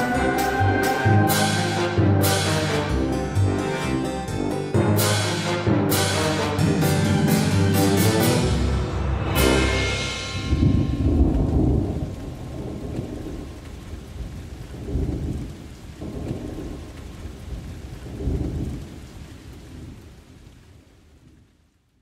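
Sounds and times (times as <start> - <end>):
steady rain: 0.0 - 22.0
thunder rumbling: 4.3 - 21.5.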